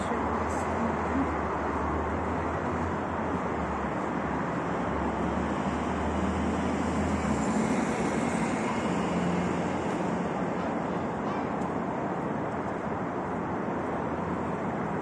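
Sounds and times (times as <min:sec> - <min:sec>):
road traffic rushing: 0:00.0 - 0:15.0.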